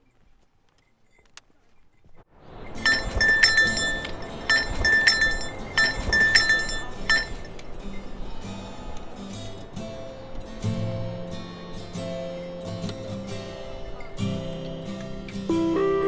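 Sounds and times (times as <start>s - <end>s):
shuffling footsteps on trail: 0.0s - 2.3s
small jingle bell clinking: 2.8s - 7.5s.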